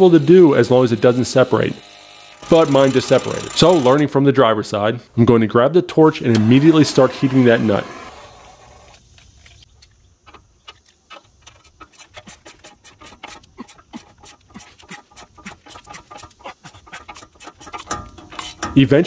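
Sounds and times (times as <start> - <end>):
ratcheting wrench clicking: 0.1 - 4.0.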